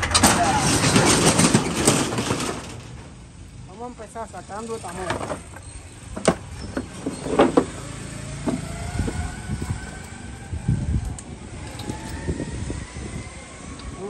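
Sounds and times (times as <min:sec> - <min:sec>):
motorcycle clunks and knocks: 0:05.0 - 0:10.0.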